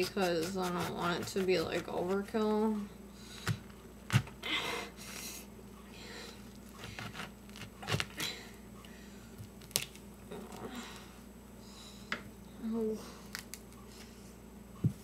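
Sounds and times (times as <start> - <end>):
knife cutting pomegranate rind: 0.0 - 2.3, 6.7 - 8.4.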